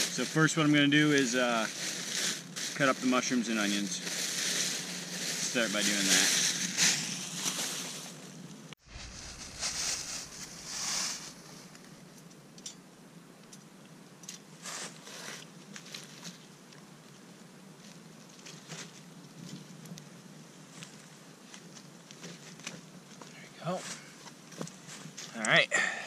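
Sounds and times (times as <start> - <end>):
fur brushing against camera: 0.0 - 8.2, 8.8 - 12.0
campfire crackling: 0.0 - 23.5.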